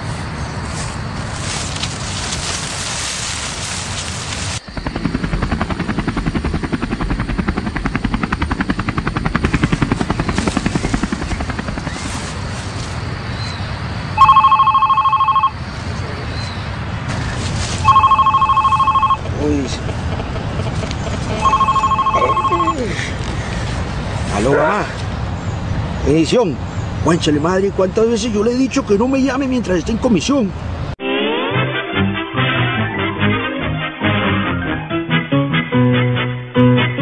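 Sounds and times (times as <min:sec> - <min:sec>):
helicopter rotor pulsing: 0:04.6 - 0:13.2, 0:14.2 - 0:15.6, 0:17.1 - 0:24.0
phone ringing two-tone beep: 0:14.2 - 0:15.6, 0:17.8 - 0:19.2, 0:21.4 - 0:22.9.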